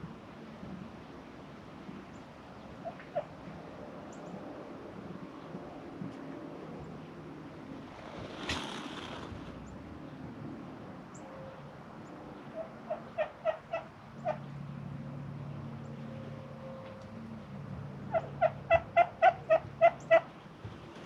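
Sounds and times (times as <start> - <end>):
turkey gobbling: 12.6 - 14.4, 18.1 - 20.3.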